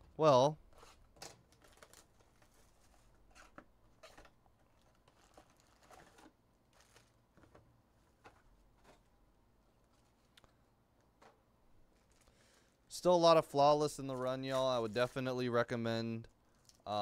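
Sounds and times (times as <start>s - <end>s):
foil packs crinkling: 0.8s - 7.3s, 11.9s - 12.7s, 13.8s - 15.5s.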